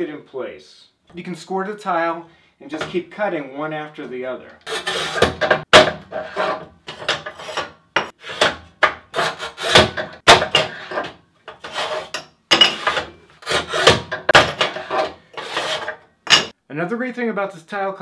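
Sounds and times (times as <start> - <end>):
tile cutter wheel scratching: 4.6 - 5.4, 6.0 - 16.0.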